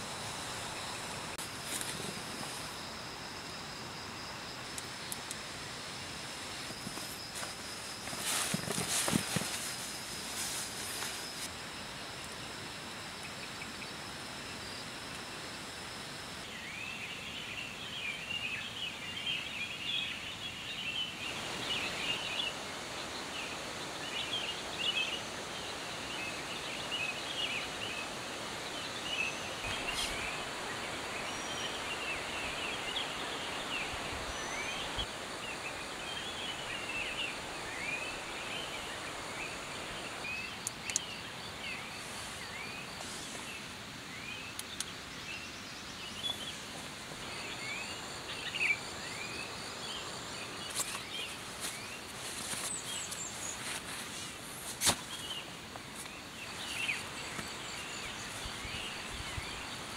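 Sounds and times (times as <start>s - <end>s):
steady background hiss: 0.0s - 59.9s
birds chirping: 16.5s - 59.9s.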